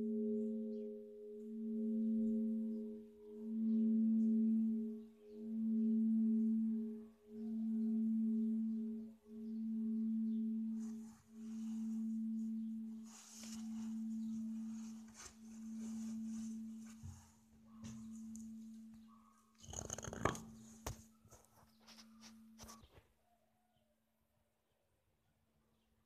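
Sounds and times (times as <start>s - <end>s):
bell humming: 0.0s - 20.8s
faint rustling: 10.8s - 23.1s.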